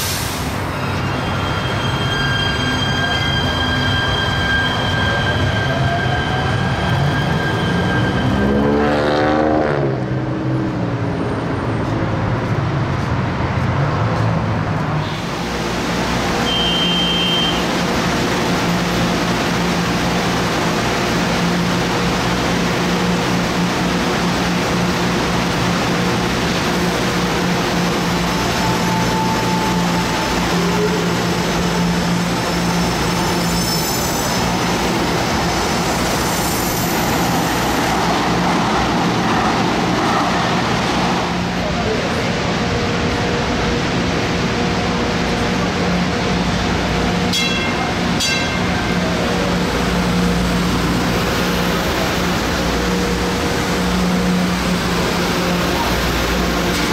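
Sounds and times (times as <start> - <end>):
vehicle rumble and rolling noise: 7.8 - 17.2, 34.3 - 56.9.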